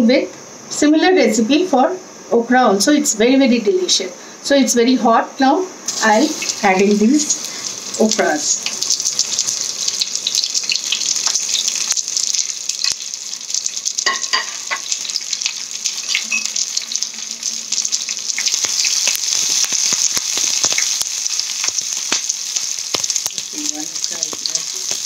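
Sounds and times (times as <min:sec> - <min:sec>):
okra sizzling in hot oil: 0:05.9 - 0:25.0.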